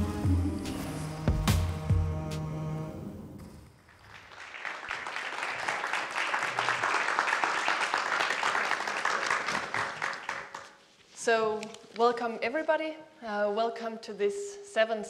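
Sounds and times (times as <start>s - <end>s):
audience applauding: 3.9s - 10.8s.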